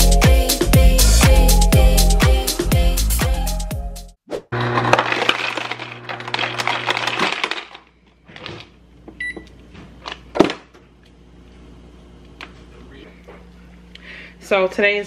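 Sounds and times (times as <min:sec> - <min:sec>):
ice dispenser motor hum: 0:04.6 - 0:07.9
ice cubes clattering into cup: 0:04.7 - 0:07.9.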